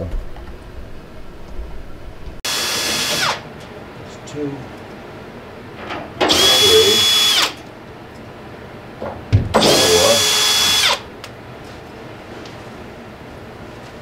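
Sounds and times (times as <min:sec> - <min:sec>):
power drill whining: 0:02.5 - 0:03.4, 0:06.3 - 0:07.6, 0:09.6 - 0:11.1.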